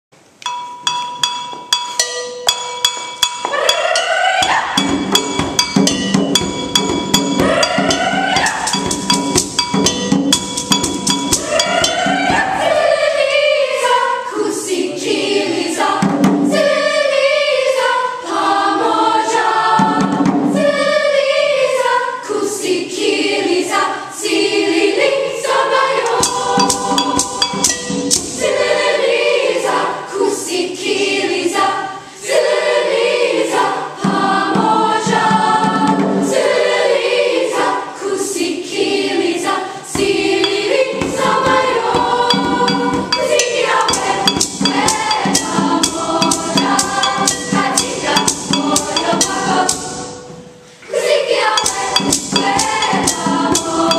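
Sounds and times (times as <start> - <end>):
hand percussion: 0.4 - 12.8, 26.0 - 28.8, 40.0 - 50.5, 51.4 - 53.9
youth choir singing: 3.2 - 53.9.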